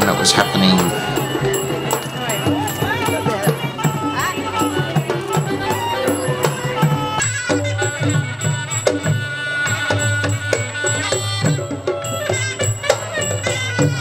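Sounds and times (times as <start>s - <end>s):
sustained melody notes: 0.0s - 7.6s
drums and percussion beat: 0.0s - 14.0s.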